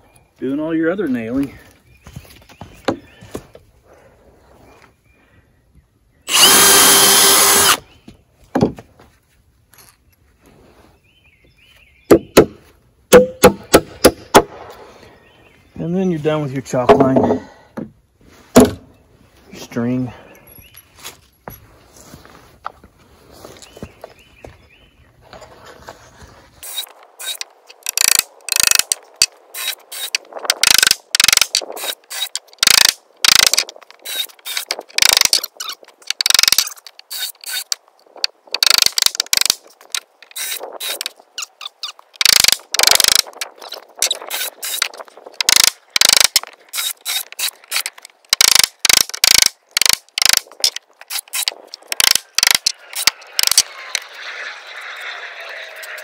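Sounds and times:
power driver ratcheting screws: 6.3 - 7.8, 26.6 - 37.8, 38.5 - 54.1.

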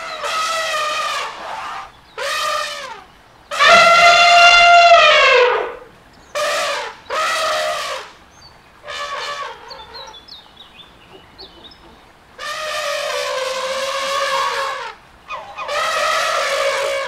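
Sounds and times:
elephant trumpeting: 0.0 - 8.1, 8.8 - 10.2, 11.1 - 17.0
faint bird chirps: 9.7 - 12.1.

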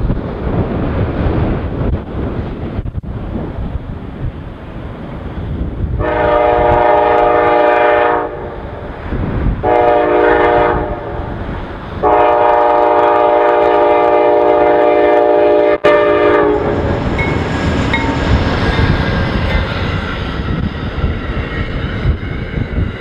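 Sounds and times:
passing train rumble: 0.0 - 23.0
locomotive horn blasts: 6.0 - 8.5, 9.6 - 11.4, 12.0 - 16.8.

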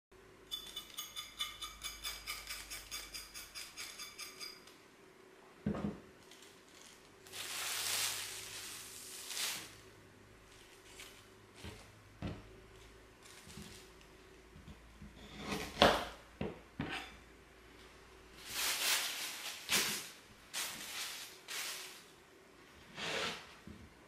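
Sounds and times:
plastic bag crinkling: 6.2 - 9.8, 18.4 - 22.1.

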